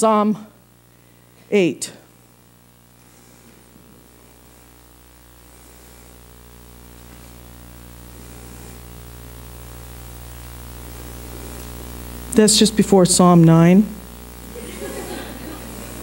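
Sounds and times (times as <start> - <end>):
electrical mains hum: 0.0 - 16.0
sound system hiss: 0.0 - 16.0.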